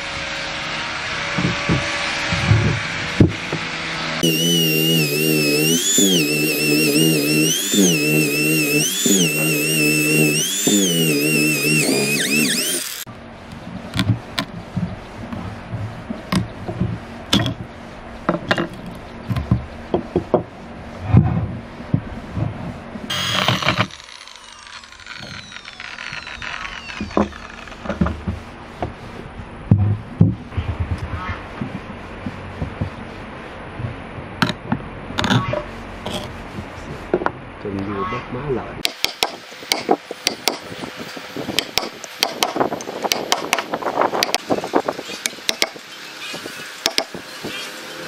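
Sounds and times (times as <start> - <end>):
electric drill whining: 4.2 - 13.1, 23.1 - 28.0
wood scraping and splitting: 23.1 - 28.4.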